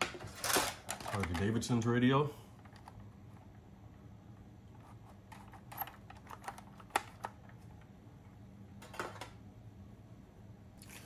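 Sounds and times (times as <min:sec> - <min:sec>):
plastic clatter: 0:00.0 - 0:01.6, 0:08.8 - 0:09.4
low steady hum: 0:00.0 - 0:11.0.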